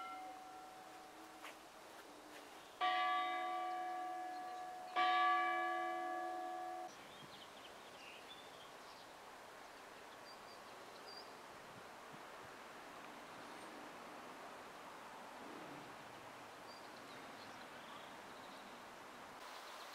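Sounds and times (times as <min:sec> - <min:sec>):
church bell ringing: 0:00.0 - 0:01.3, 0:02.8 - 0:07.0.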